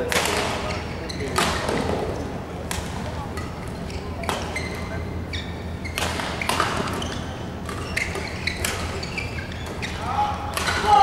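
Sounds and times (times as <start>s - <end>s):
shoe squeaks on court: 3.8s - 10.1s.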